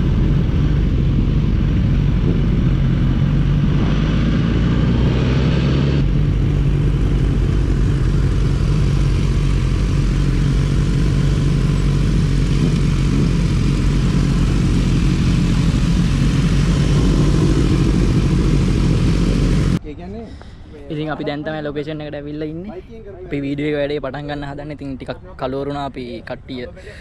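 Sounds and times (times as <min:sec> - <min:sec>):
motorcycle engine running: 0:00.0 - 0:19.8
road and wind noise: 0:00.0 - 0:27.0.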